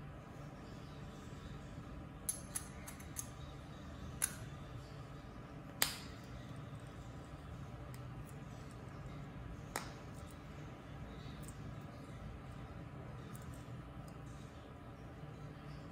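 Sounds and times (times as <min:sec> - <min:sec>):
low steady hum: 0:00.0 - 0:15.9
small metallic clicks: 0:02.3 - 0:03.4.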